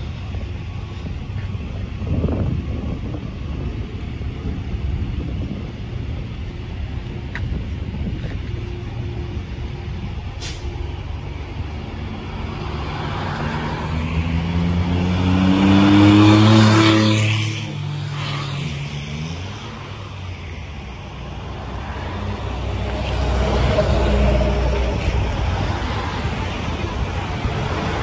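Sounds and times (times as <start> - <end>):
low traffic rumble: 0.0 - 28.0
vehicle passing close by: 10.7 - 28.0.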